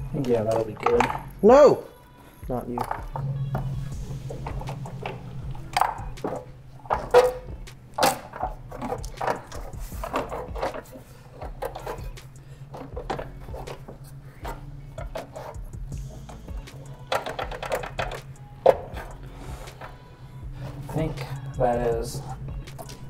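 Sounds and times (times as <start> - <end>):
steady low hum: 0.0 - 23.0
plastic parts knocking and clicking: 0.2 - 1.3, 2.7 - 3.7, 4.3 - 19.1.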